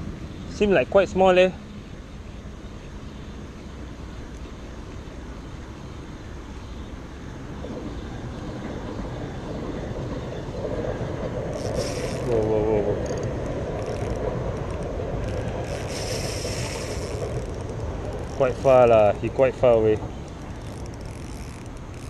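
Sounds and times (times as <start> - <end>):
fishing reel whirring: 11.5 - 19.0, 19.6 - 22.0
short hissy bursts: 11.6 - 12.4, 15.7 - 17.6.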